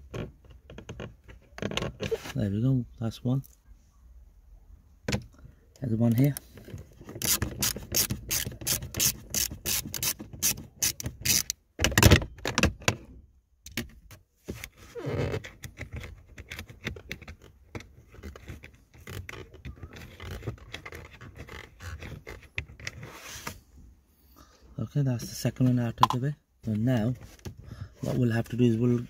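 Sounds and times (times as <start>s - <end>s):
socket ratchet wrench clicking: 7.2s - 11.6s.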